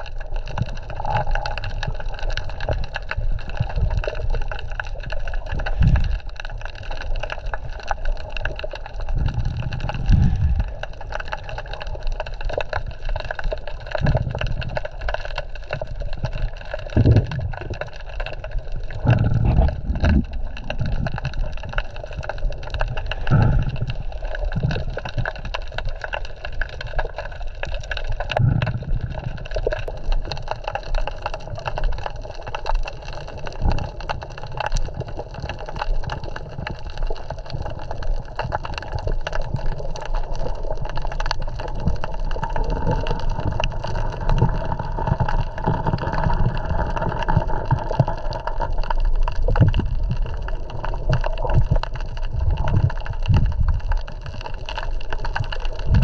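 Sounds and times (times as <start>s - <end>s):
muffled underwater water wash: 0.0s - 56.0s
dull low thumps: 17.0s - 17.7s, 19.0s - 20.4s.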